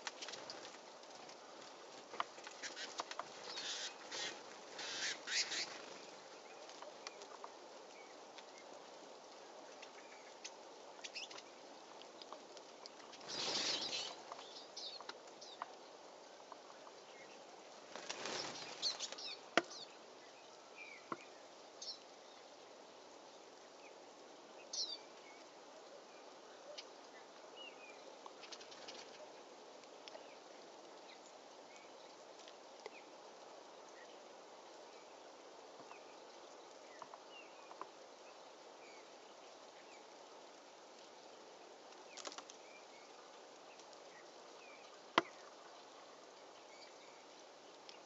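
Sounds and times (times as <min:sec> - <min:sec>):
wings fluttering: 0:00.0 - 0:07.5, 0:12.6 - 0:14.5, 0:17.8 - 0:19.8, 0:28.4 - 0:29.3, 0:41.9 - 0:42.6
faint steady hiss: 0:00.0 - 0:48.0
songbird chirps: 0:00.0 - 0:48.0.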